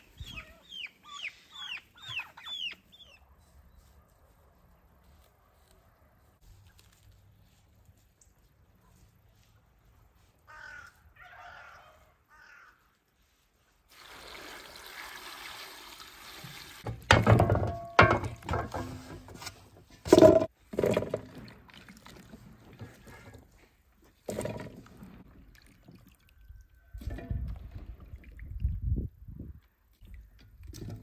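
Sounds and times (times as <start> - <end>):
sharp knocks and clatters: 16.8 - 21.3.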